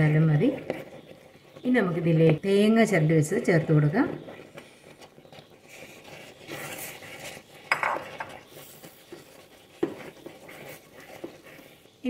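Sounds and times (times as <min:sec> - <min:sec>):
spatula scraping thick mixture: 0:03.7 - 0:12.0.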